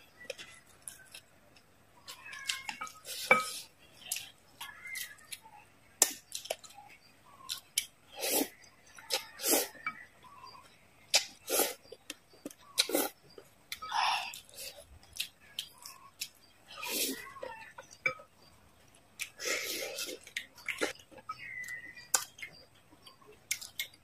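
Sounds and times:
slurping noodles: 0:08.2 - 0:09.8
wet chewing and lip smacks: 0:20.1 - 0:24.0.

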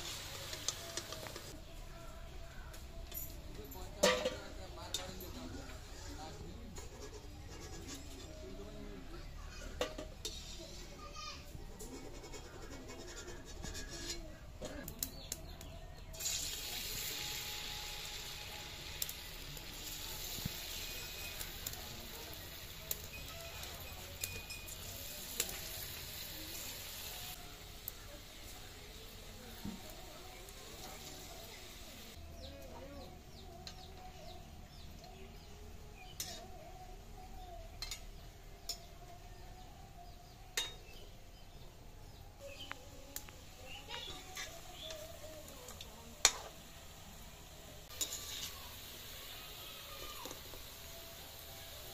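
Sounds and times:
hot oil sizzling with pops: 0:00.0 - 0:01.6, 0:09.8 - 0:10.8, 0:16.1 - 0:32.2, 0:37.7 - 0:38.9, 0:40.5 - 0:40.9, 0:42.6 - 0:51.9.

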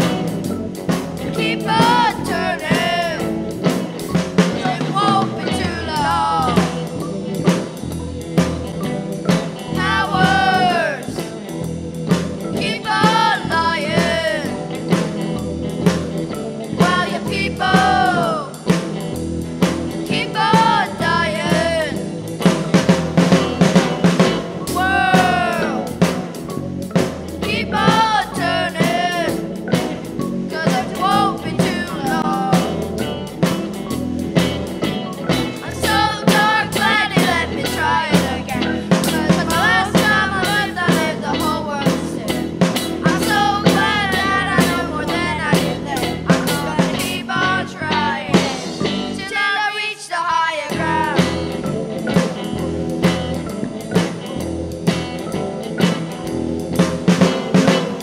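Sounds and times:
electric bass: 0:00.0 - 0:49.4, 0:50.7 - 0:58.0
drum kit beat: 0:00.0 - 0:49.6, 0:50.6 - 0:58.0
keyboard: 0:00.0 - 0:50.0, 0:50.6 - 0:58.0
person singing: 0:01.2 - 0:03.8, 0:04.4 - 0:07.6, 0:09.7 - 0:11.4, 0:12.5 - 0:14.7, 0:16.7 - 0:18.8, 0:20.1 - 0:22.1, 0:24.7 - 0:26.2, 0:27.4 - 0:29.8, 0:30.5 - 0:33.1, 0:35.5 - 0:51.8.

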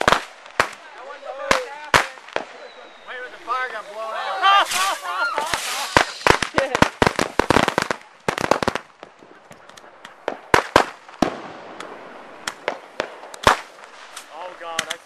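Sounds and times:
rocket pops: 0:00.0 - 0:02.8, 0:04.6 - 0:15.0
hissing rocket launches: 0:01.5 - 0:08.8.

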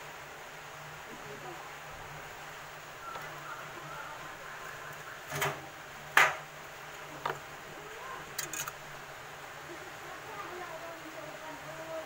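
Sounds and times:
faint low hum: 0:00.0 - 0:12.0
wires being twisted by hand: 0:08.2 - 0:08.8.

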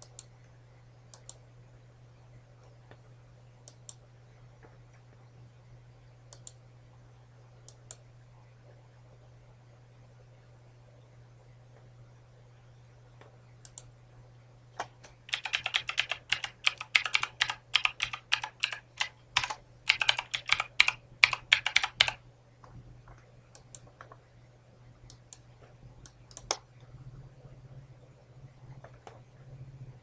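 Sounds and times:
computer keyboard typing: 0:14.8 - 0:22.2.

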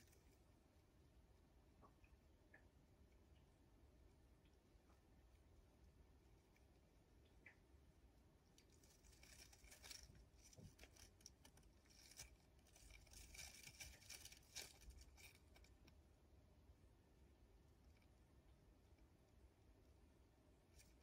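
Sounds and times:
hamster scratching on wood: 0:08.5 - 0:16.0.

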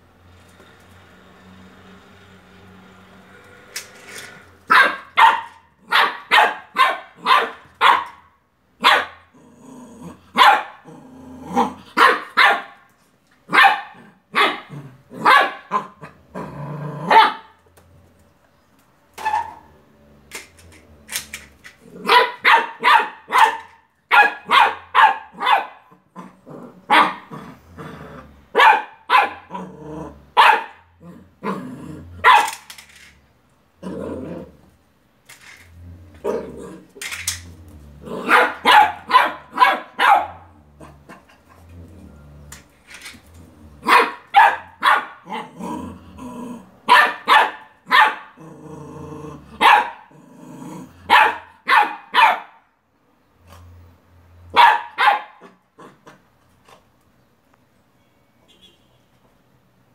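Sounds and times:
puppy barking: 0:04.7 - 0:09.3, 0:10.3 - 0:10.9, 0:11.6 - 0:12.9, 0:13.5 - 0:16.1, 0:17.1 - 0:17.6, 0:19.2 - 0:19.7, 0:22.0 - 0:26.3, 0:26.9 - 0:27.3, 0:28.5 - 0:29.6, 0:30.3 - 0:31.6, 0:32.2 - 0:32.6, 0:38.2 - 0:40.5, 0:43.8 - 0:45.6, 0:46.9 - 0:48.4, 0:49.6 - 0:50.1, 0:51.0 - 0:52.7, 0:54.5 - 0:55.6.

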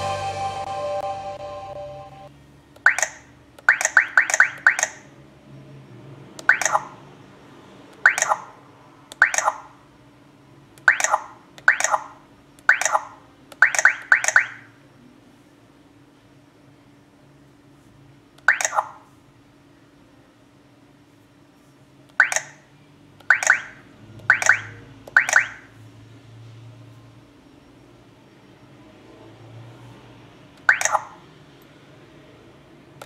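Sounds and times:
touchscreen key-press beeps: 0:02.9 - 0:05.0, 0:06.5 - 0:06.9, 0:12.7 - 0:14.6, 0:18.5 - 0:18.9, 0:22.2 - 0:22.5, 0:23.3 - 0:23.7, 0:24.3 - 0:25.6, 0:30.7 - 0:31.1.

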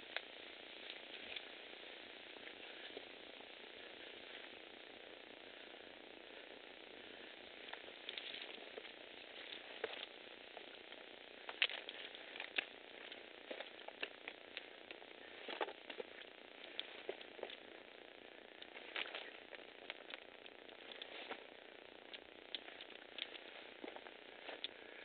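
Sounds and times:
faint steady hiss: 0:00.0 - 0:25.0
footsteps on loose stone: 0:07.7 - 0:10.7, 0:11.5 - 0:14.4, 0:15.3 - 0:17.6, 0:18.7 - 0:20.2.

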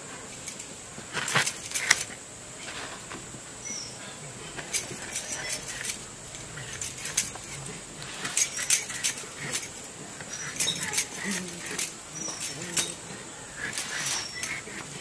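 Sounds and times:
bangles clinking: 0:00.2 - 0:02.8, 0:04.6 - 0:15.0.

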